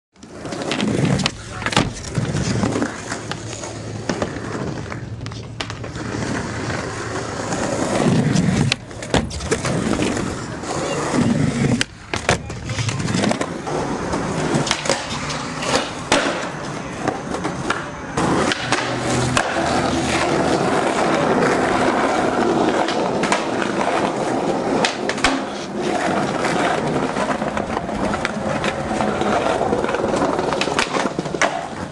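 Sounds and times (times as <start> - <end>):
skateboard clacks popping and landing: 0.2 - 6.0, 7.5 - 10.2, 11.6 - 31.9
skateboard wheels rolling on concrete: 0.2 - 31.9.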